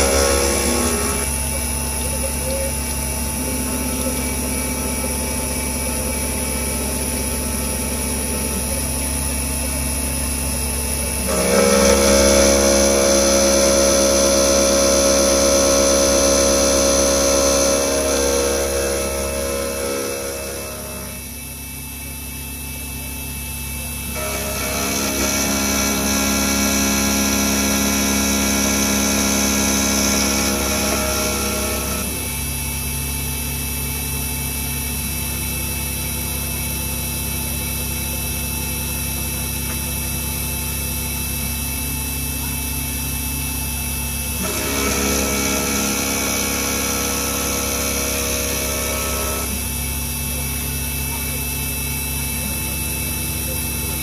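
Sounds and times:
higher machine whine: 0:00.0 - 0:33.8
milling machine whine: 0:00.0 - 0:54.0.

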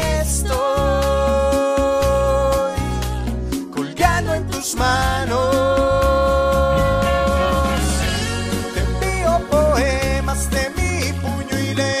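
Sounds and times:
backing music with steady bass: 0:00.0 - 0:12.0
man singing a long note: 0:03.9 - 0:09.2.

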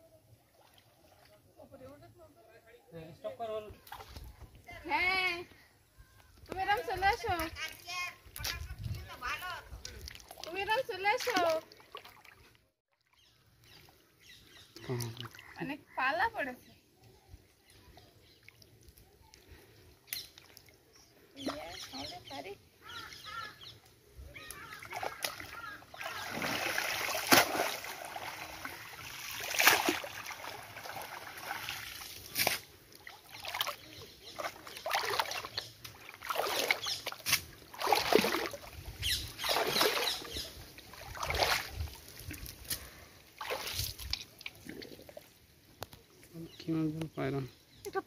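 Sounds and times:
water and mud splashing: 0:03.8 - 0:05.2, 0:06.4 - 0:14.0, 0:24.3 - 0:45.8
squelching steps in mud: 0:09.8 - 0:10.6, 0:24.4 - 0:45.0.

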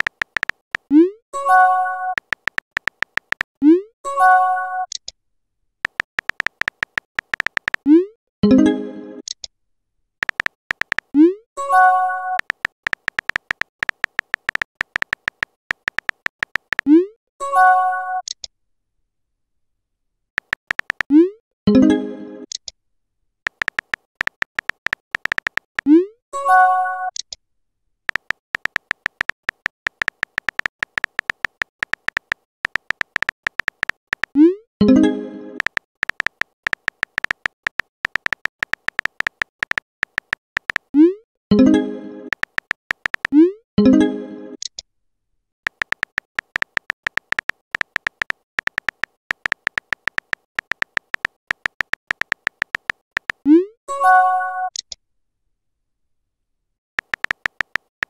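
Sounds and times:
keyboard tap clicks: 0:00.0 - 0:00.9, 0:02.2 - 0:03.5, 0:05.8 - 0:07.8, 0:10.2 - 0:11.1, 0:12.4 - 0:16.9, 0:20.4 - 0:21.1, 0:23.5 - 0:25.9, 0:28.1 - 0:34.4, 0:35.6 - 0:40.9, 0:42.3 - 0:43.4, 0:45.7 - 0:53.4, 0:57.0 - 0:58.0.

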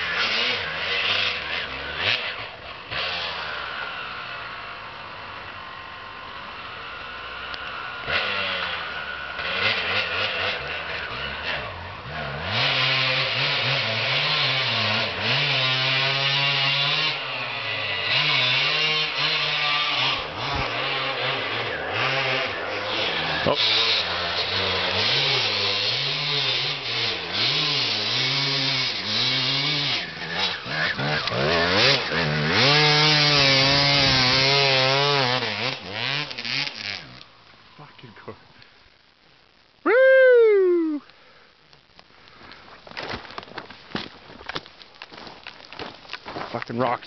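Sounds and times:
dirt bike engine revving: 0:00.0 - 0:37.4.

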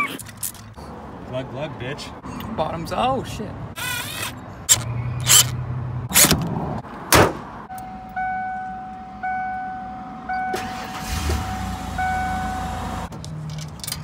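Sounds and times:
car engine starting and running: 0:04.6 - 0:13.8
car warning chime: 0:07.7 - 0:13.0.

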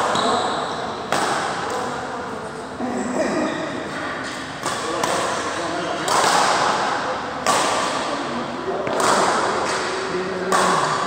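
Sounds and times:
racket hitting shuttlecock: 0:00.0 - 0:01.9, 0:04.0 - 0:11.0.

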